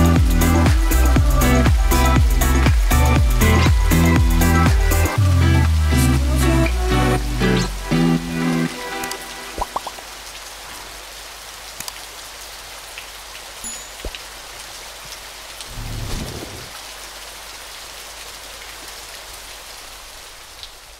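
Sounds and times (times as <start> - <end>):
rain pattering: 0.0 - 20.9
water drips: 8.0 - 10.8, 11.7 - 12.1, 12.8 - 15.8.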